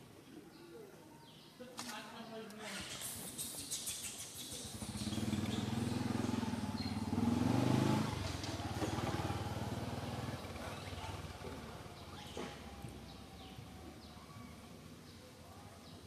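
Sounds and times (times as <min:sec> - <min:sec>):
passing vehicle engine: 0:04.4 - 0:13.7.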